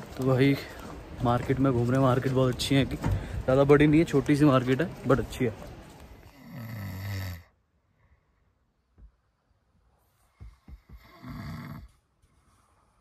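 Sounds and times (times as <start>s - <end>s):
man snoring: 6.3s - 7.5s, 10.8s - 12.0s.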